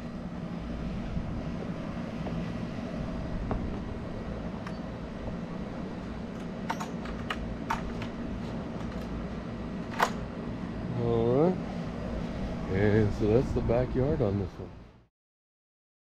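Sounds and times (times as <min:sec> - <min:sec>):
low mechanical hum: 0:00.0 - 0:15.1
wooden gate clicks and knocks: 0:06.4 - 0:08.2.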